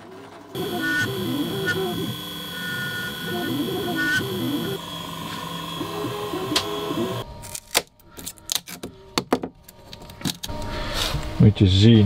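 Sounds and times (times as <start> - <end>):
stepper motors whining: 0.2 - 7.2.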